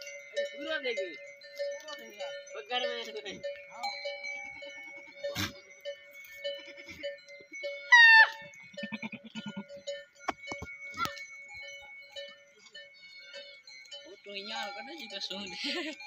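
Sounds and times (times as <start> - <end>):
bell clinking: 0.0 - 16.0
goats bleating: 4.7 - 5.7, 6.5 - 7.2, 8.0 - 9.8.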